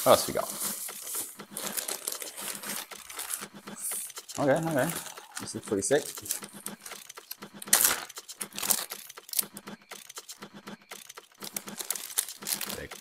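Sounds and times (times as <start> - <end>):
plastic bag crinkling: 0.1 - 3.4, 11.4 - 12.9.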